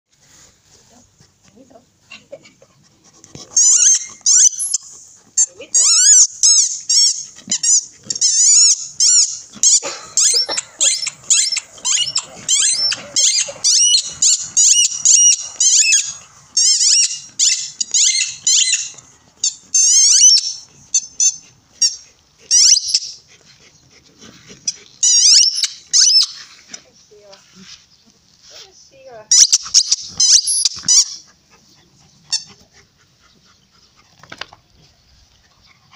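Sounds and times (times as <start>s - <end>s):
dog chewing squeaky ball: 3.3s - 26.5s, 29.3s - 34.3s.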